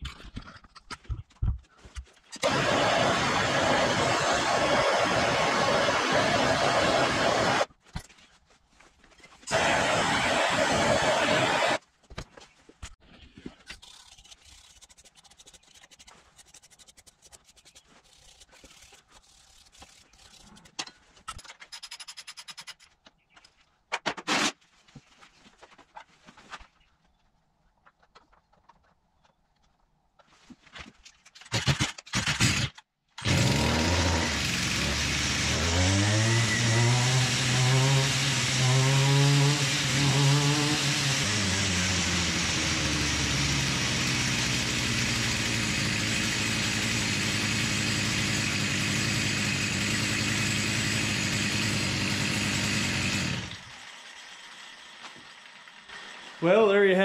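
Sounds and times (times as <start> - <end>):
string trimmer engine revving: 2.4 - 7.7, 9.5 - 11.8, 33.2 - 54.9.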